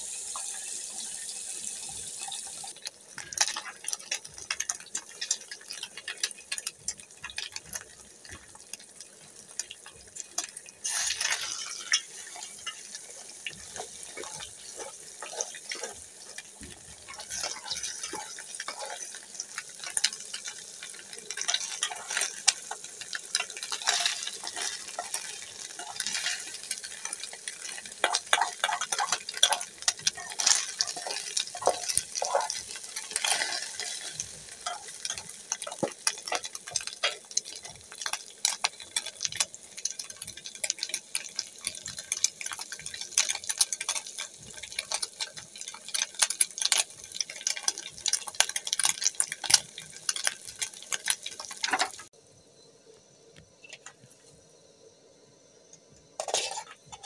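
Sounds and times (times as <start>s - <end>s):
frying sizzle: 0.0s - 57.0s
spoon scraping metal pot: 10.4s - 20.6s, 21.3s - 39.1s, 56.2s - 57.0s.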